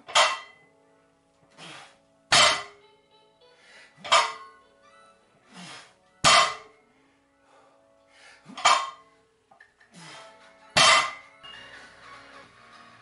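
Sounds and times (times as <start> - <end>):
metal ringing: 0.0 - 0.6, 2.3 - 2.8, 4.0 - 4.6, 6.2 - 6.8, 8.6 - 9.1, 10.8 - 11.3
person breathing: 3.5 - 4.0, 5.4 - 6.0, 6.8 - 8.6, 9.2 - 10.5.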